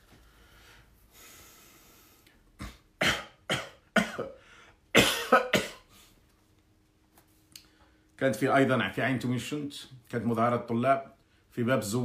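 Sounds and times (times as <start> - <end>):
man coughing: 2.6 - 5.9.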